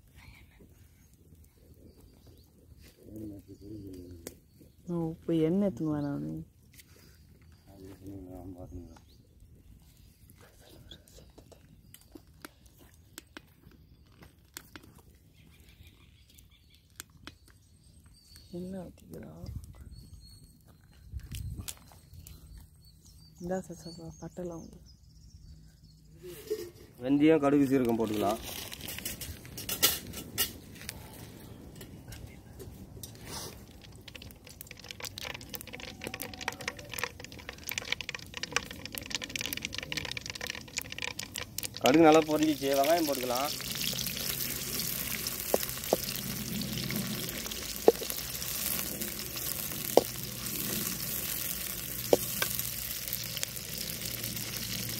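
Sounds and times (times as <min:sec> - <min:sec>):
wood fire crackling: 0:00.0 - 0:19.4, 0:27.5 - 0:54.9
low background rumble: 0:28.8 - 0:54.9
seeds popping in hot oil: 0:31.8 - 0:54.9.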